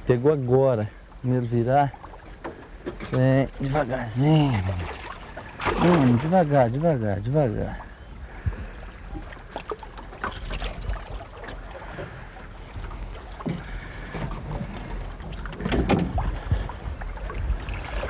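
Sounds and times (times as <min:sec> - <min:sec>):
water sloshing: 0:00.9 - 0:18.0
fish splashing beside a boat: 0:01.9 - 0:06.8, 0:07.8 - 0:18.0
steady low rumble: 0:10.9 - 0:18.0.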